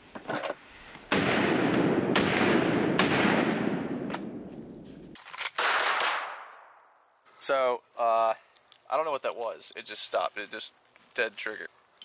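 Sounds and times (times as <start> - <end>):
pistol shots with rumbling echo: 1.1 - 4.5, 5.6 - 6.5.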